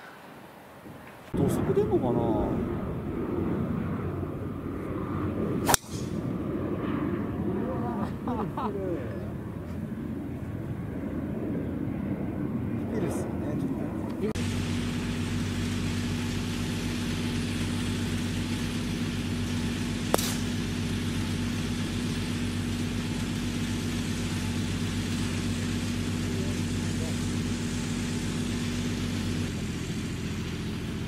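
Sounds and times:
low engine hum: 1.2 - 31.0
golf club striking ball: 5.6 - 6.3, 16.2 - 21.6.

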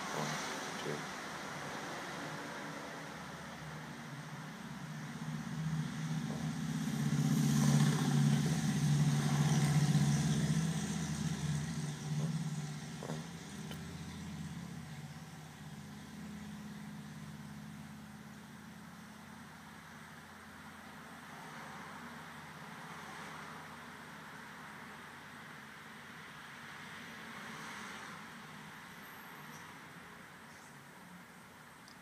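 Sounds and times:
car passing by: 0.0 - 16.8, 21.2 - 24.7, 26.4 - 30.2.

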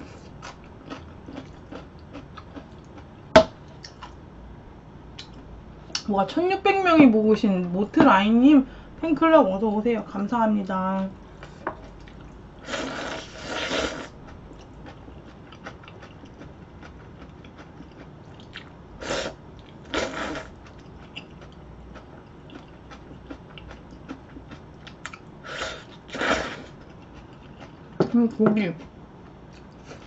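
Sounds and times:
noodle slurping: 12.6 - 14.2.

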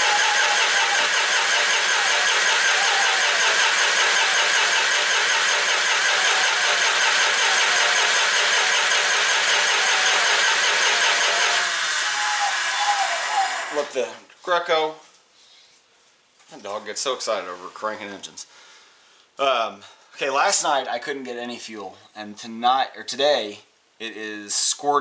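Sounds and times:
diesel engine cranking on starter: 0.0 - 14.0.

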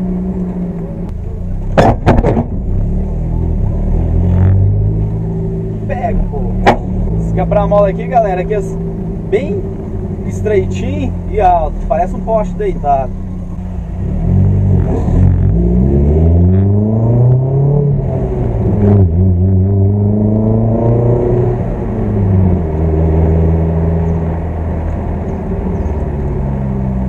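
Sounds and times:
car engine accelerating: 0.0 - 27.0
short clunk: 1.7 - 2.6, 6.6 - 6.9.

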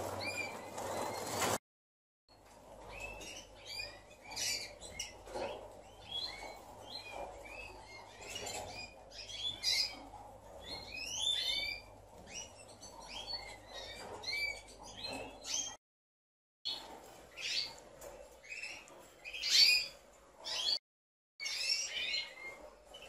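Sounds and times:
finches chirping: 2.8 - 15.8, 16.7 - 20.8, 21.4 - 23.0.

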